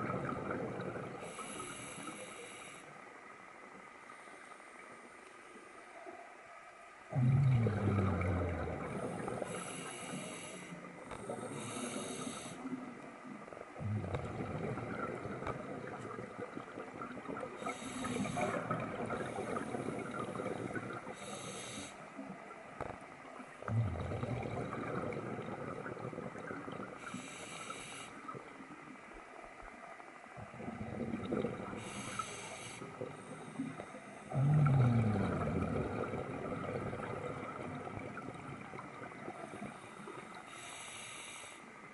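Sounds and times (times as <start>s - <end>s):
exhaled bubbles bursting: 0.0s - 1.2s, 7.1s - 9.6s, 13.8s - 21.3s, 23.6s - 27.1s, 30.4s - 32.2s, 32.8s - 40.4s
regulator inhale hiss: 1.2s - 3.0s, 9.3s - 12.9s, 17.6s - 18.7s, 21.2s - 22.2s, 27.0s - 28.3s, 31.8s - 34.2s, 39.8s - 41.8s.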